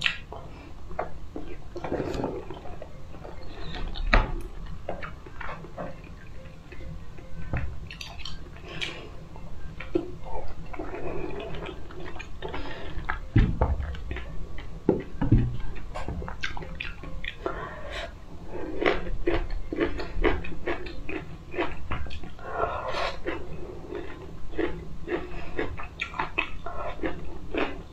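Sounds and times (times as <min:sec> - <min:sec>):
person chewing food: 0:00.0 - 0:27.9
dull low thumps: 0:13.2 - 0:16.5.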